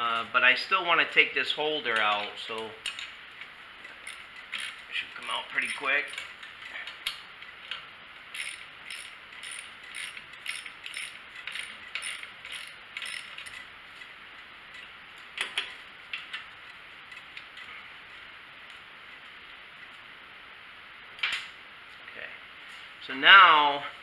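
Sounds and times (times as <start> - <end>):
socket ratchet clicking: 4.0 - 4.8, 8.3 - 13.6.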